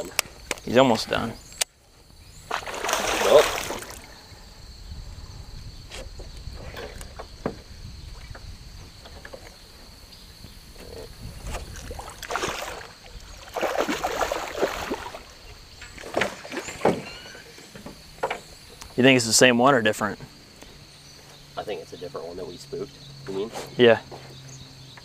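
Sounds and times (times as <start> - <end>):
fish thrashing and splashing: 2.5 - 4.1, 11.6 - 15.4.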